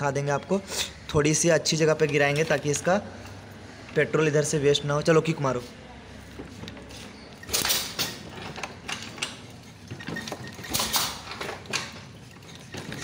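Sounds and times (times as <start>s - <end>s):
scooter engine cranking clatter: 7.3s - 13.0s.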